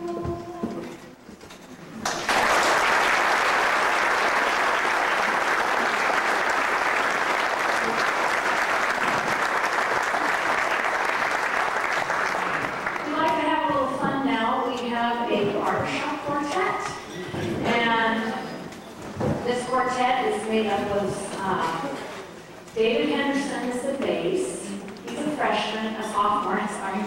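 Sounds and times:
audience applauding: 2.0 - 13.2.

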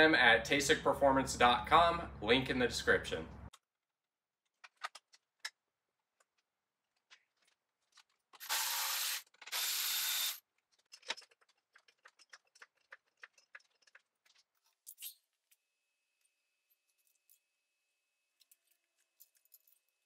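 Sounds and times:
cordless ratchet running: 8.4 - 10.4.

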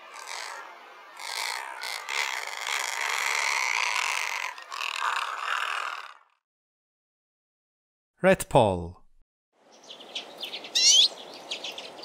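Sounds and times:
bird growling call: 0.0 - 6.4.

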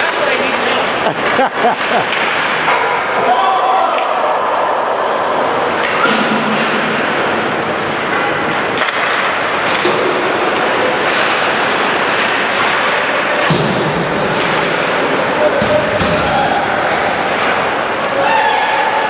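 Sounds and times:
spectators' voices: 0.0 - 19.0
hockey sticks and puck knocking: 1.1 - 3.0, 5.7 - 16.5
skates scraping on ice: 4.6 - 18.9.

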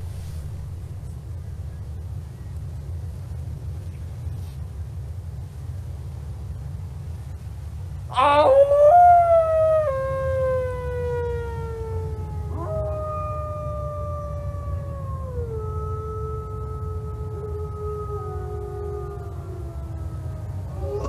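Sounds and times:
man howling like a wolf: 8.1 - 21.0
wolf howling: 8.1 - 21.0.

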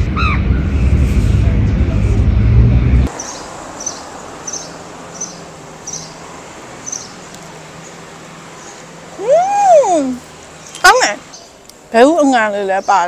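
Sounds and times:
loud low-pitched sound: 0.0 - 3.1.

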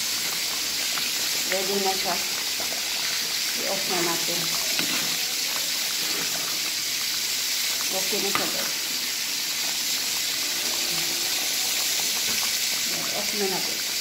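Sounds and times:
curry sizzling in a pot: 0.0 - 14.0.

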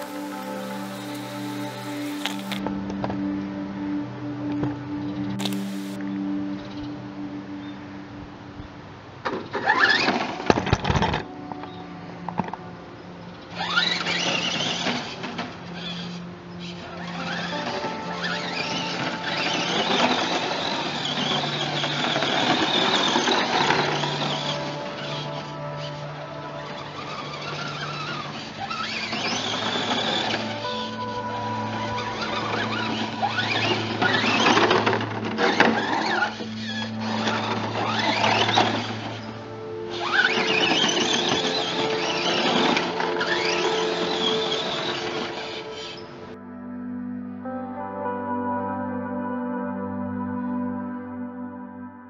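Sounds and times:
electric motor whining: 0.0 - 2.6, 5.4 - 6.0, 13.6 - 46.2
music: 0.0 - 52.0.

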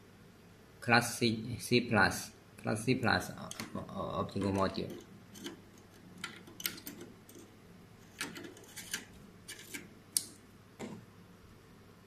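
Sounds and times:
small metal and plastic clicks: 4.4 - 7.5.

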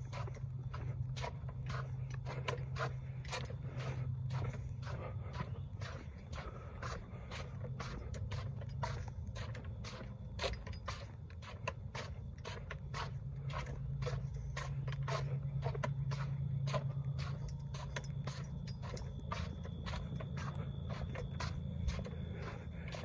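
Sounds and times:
footsteps on concrete: 0.0 - 23.0
steady low hum: 0.0 - 23.0.

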